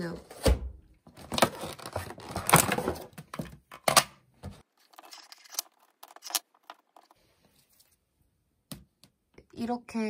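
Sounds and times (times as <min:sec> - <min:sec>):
packaging rustling and clicking: 0:01.1 - 0:04.0, 0:04.8 - 0:07.2.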